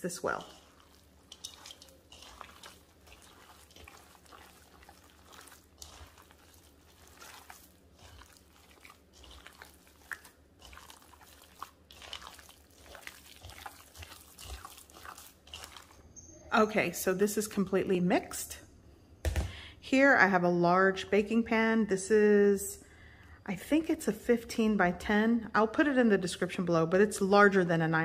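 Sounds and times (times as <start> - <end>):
wet squishing of kneaded meat: 0.0 - 16.0.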